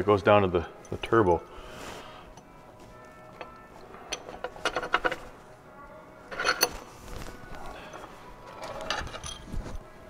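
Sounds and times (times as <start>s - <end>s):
metal tools clinking and rattling: 3.4s - 5.4s, 6.3s - 6.9s, 7.9s - 9.7s.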